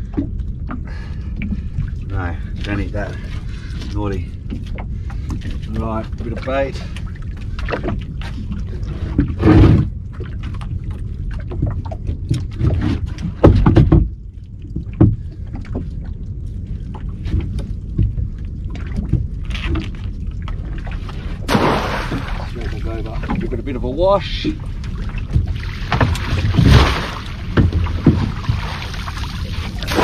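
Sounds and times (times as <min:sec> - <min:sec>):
water lapping boat hull: 0:00.0 - 0:30.0
pot splashing into water: 0:21.5 - 0:22.5.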